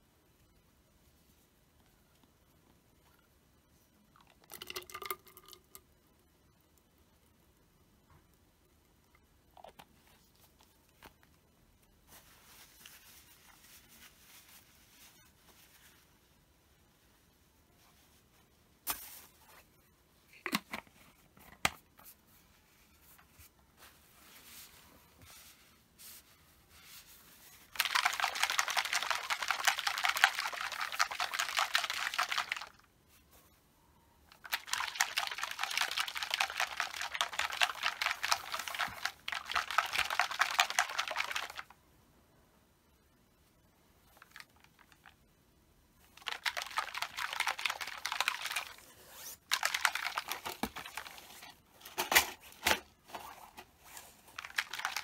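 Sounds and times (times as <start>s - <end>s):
plastic bottle of oil shaken: 27.4s - 32.9s, 34.3s - 41.7s, 46.0s - 51.6s, 54.0s - 55.0s.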